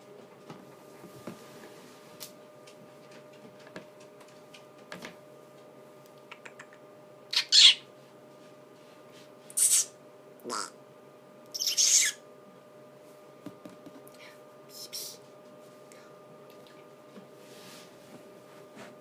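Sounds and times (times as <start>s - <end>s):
faint clicks and taps: 2.2s - 6.8s
parrot squawking: 7.3s - 7.9s, 9.6s - 9.9s, 10.5s - 10.8s, 11.5s - 12.2s.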